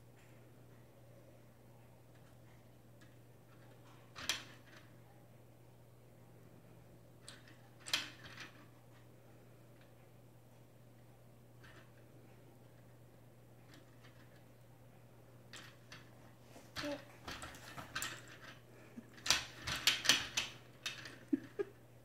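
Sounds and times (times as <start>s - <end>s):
faint low hum: 0.0s - 22.0s
plastic toys clacking: 16.8s - 21.5s.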